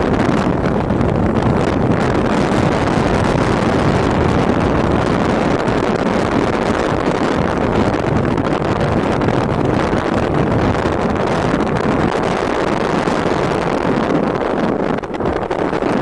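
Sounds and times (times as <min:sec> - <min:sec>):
vehicle road and engine noise: 0:00.0 - 0:16.0
wind on microphone: 0:00.0 - 0:16.0.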